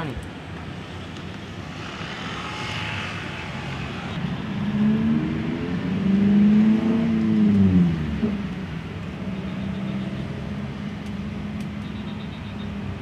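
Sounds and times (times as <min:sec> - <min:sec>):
vehicle engine passing by: 0:01.5 - 0:08.0.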